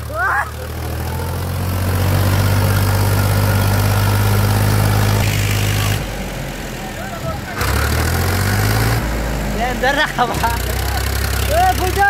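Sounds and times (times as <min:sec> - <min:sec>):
tractor diesel engine under load: 0:00.0 - 0:12.0.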